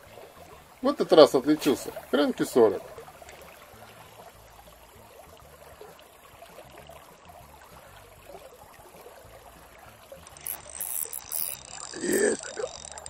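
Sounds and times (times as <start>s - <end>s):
faint river water gurgling: 0.0s - 13.0s.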